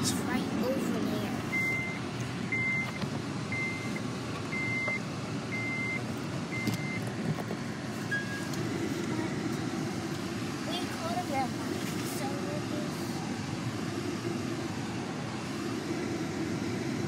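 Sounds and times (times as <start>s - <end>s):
car cabin road rumble: 0.0s - 17.0s
car warning chime beeping: 1.5s - 7.0s.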